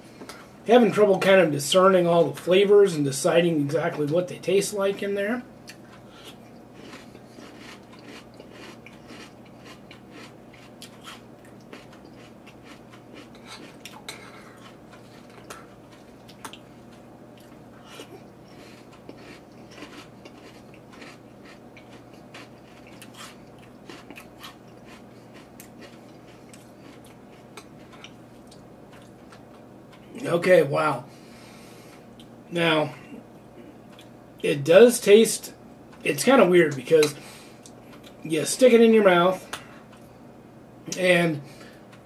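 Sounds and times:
steady low hum: 0.0s - 42.0s
chewing crunchy cereal: 5.7s - 30.2s.

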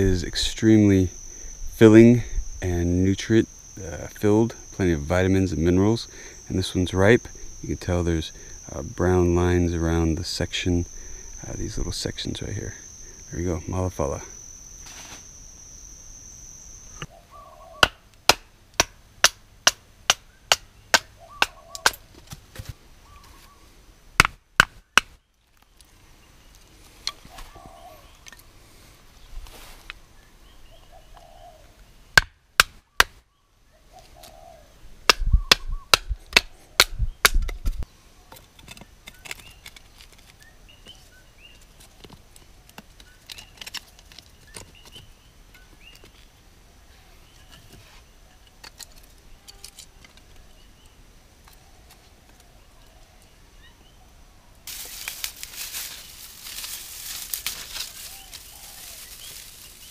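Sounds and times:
wooden knocks of splitting kindling: 24.2s - 25.1s
dry tinder rustling: 54.7s - 59.9s.

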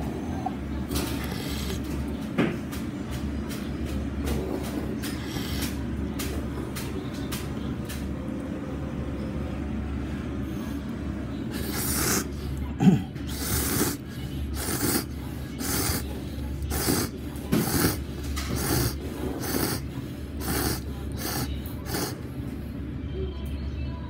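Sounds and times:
person slurping noodles: 11.6s - 16.0s, 16.6s - 19.8s, 20.4s - 22.2s.

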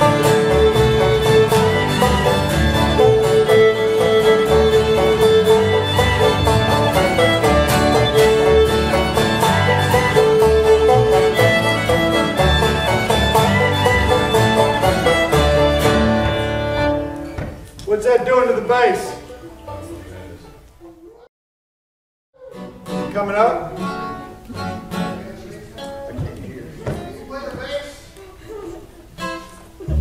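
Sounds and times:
string band playing fiddle tune: 0.0s - 20.8s, 22.5s - 30.0s.

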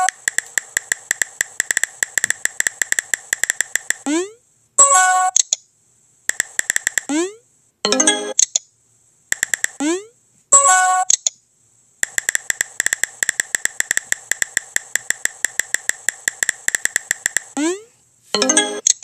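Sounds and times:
phone keyboard typing clicks: 0.0s - 4.1s, 5.2s - 5.6s, 6.3s - 7.1s, 8.3s - 8.6s, 9.3s - 9.8s, 11.0s - 11.4s, 12.0s - 17.6s
message alert chime: 7.9s - 8.4s, 18.4s - 18.9s.

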